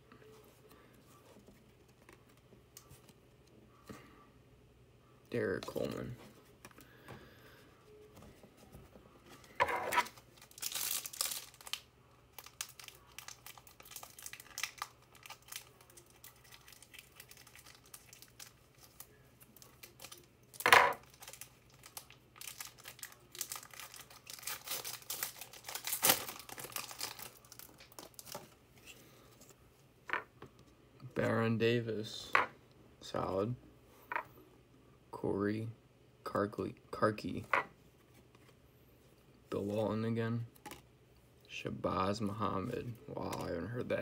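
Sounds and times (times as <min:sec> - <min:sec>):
plastic wrapper tearing and crinkling: 0:09.9 - 0:28.6.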